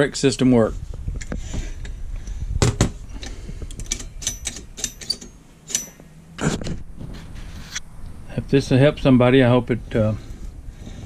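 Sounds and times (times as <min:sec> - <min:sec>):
metal clicks and clinks: 0:03.2 - 0:06.0.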